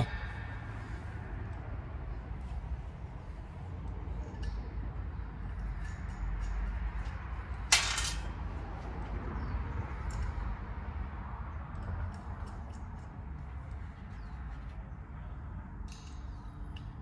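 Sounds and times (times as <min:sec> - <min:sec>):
steady low rumble: 0:00.0 - 0:17.0
small metal ticks of bolts: 0:05.4 - 0:08.2, 0:10.0 - 0:10.5, 0:11.7 - 0:13.2, 0:15.8 - 0:17.0
sharp metal clank: 0:07.7 - 0:08.3.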